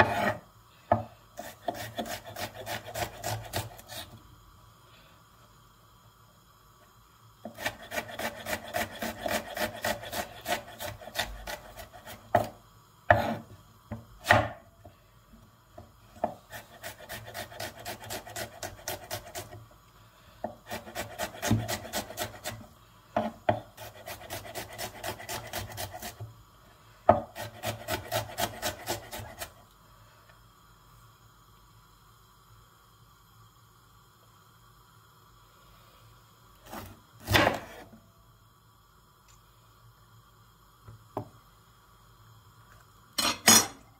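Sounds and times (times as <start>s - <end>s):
knife chopping on wooden board: 13.1s - 13.4s, 14.2s - 14.6s, 20.7s - 22.6s, 37.2s - 37.8s.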